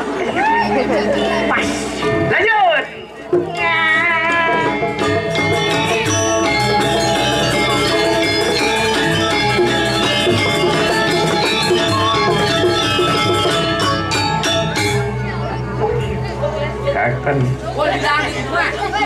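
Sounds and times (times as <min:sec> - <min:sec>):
drums: 0:00.0 - 0:17.7
metallophones ringing: 0:00.6 - 0:17.2.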